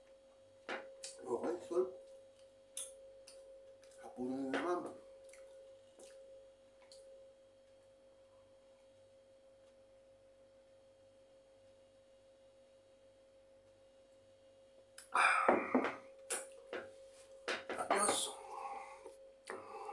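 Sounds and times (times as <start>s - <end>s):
faint electrical hum: 0.0s - 19.9s
man exhaling breathily: 15.1s - 16.0s, 18.3s - 19.9s.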